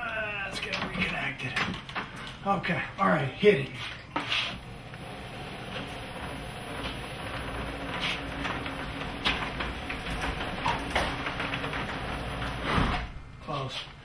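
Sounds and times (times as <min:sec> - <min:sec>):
garage door opener motor hum: 0:04.3 - 0:13.4.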